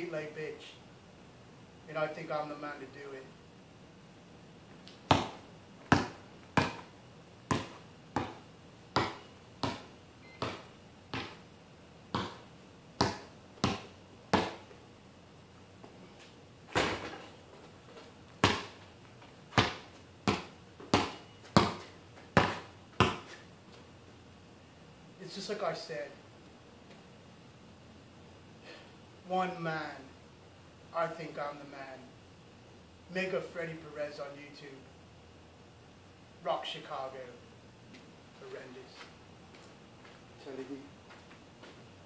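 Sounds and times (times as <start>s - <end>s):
basketball bouncing on concrete: 5.0s - 6.9s, 7.5s - 11.4s, 12.1s - 14.8s, 16.7s - 17.2s, 18.4s - 18.9s, 19.5s - 23.4s.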